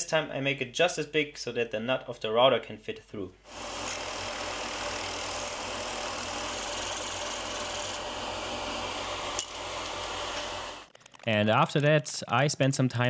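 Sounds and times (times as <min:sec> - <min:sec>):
drill bit rasping through plywood: 0:03.5 - 0:10.9
drill press motor hum: 0:03.5 - 0:10.9.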